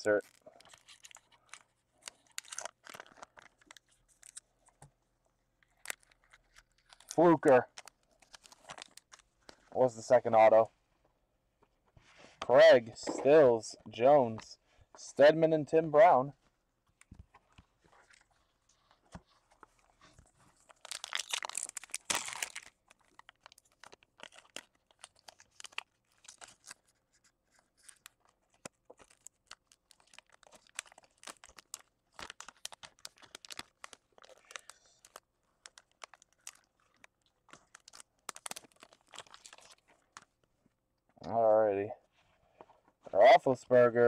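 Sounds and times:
foil wrapper tearing and crinkling: 0:00.2 - 0:04.4, 0:05.7 - 0:09.2, 0:20.6 - 0:39.9.

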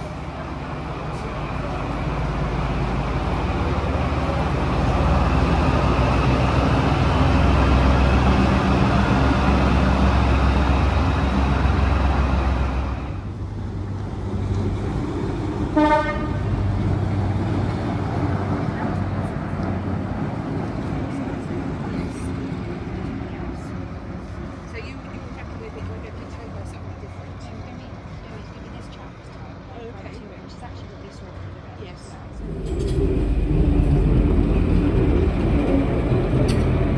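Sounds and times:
diesel train engine rumble: 0:00.0 - 0:36.9
train horn toot: 0:15.7 - 0:16.5.

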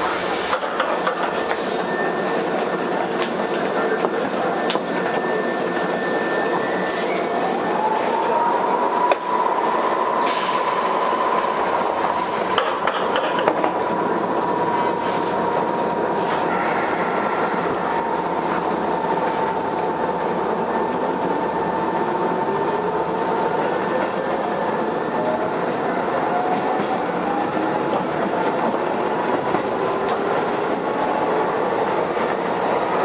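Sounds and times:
train rolling rumble: 0:00.0 - 0:33.0
rail-joint clicks: 0:00.5 - 0:01.7, 0:03.1 - 0:04.9, 0:12.4 - 0:13.8.

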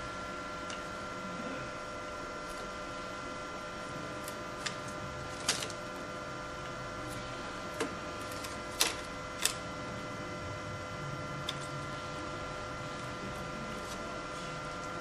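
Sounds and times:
machine hum with tones: 0:00.0 - 0:15.0.

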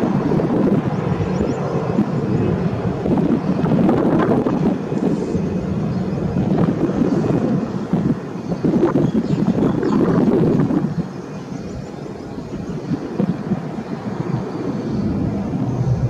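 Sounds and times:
distant jet engine rumble: 0:00.0 - 0:16.0
wind buffeting microphone: 0:00.0 - 0:16.0.

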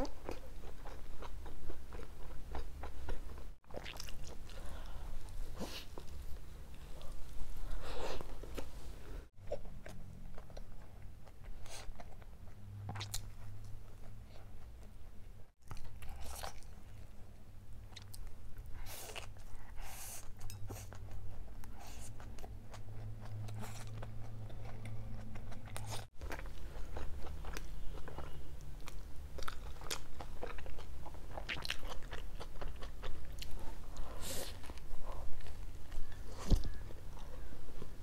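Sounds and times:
biting and chewing food: 0:20.3 - 0:38.0.

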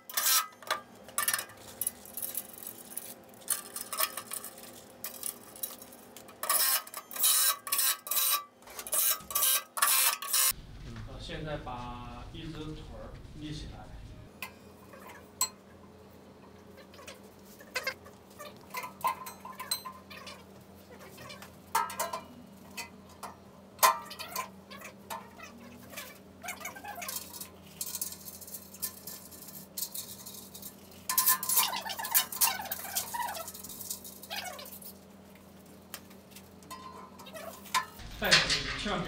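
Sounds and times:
metal clattering and scraping: 0:36.7 - 0:39.0
metal parts knocking and clinking: 0:36.7 - 0:39.0.

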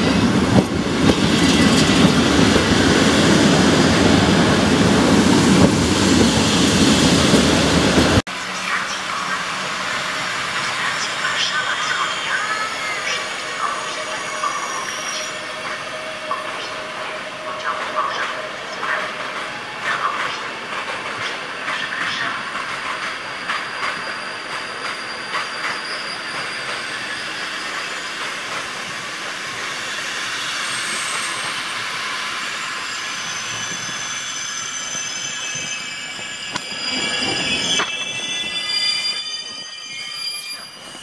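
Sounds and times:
train wheels rumbling on track: 0:00.0 - 0:41.0
high wheel squeals: 0:09.3 - 0:17.4, 0:21.6 - 0:41.0.

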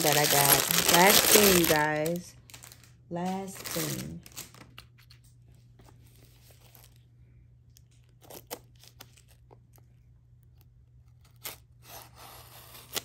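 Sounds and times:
packaging rustling and crinkling: 0:00.0 - 0:07.1.

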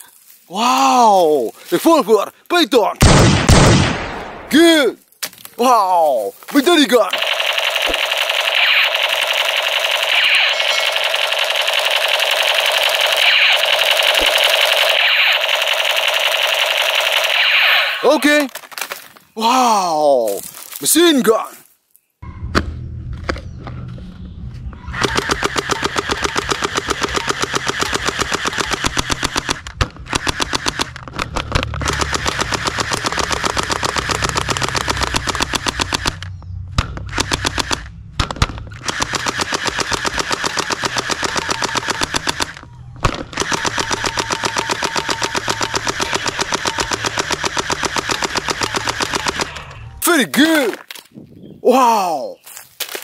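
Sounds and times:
gel blaster rapid firing: 0:07.1 - 0:18.2, 0:25.0 - 0:30.9, 0:31.8 - 0:36.2, 0:37.1 - 0:37.9, 0:38.8 - 0:42.6, 0:43.3 - 0:49.6
low hum: 0:22.2 - 0:28.2, 0:30.9 - 0:41.2.

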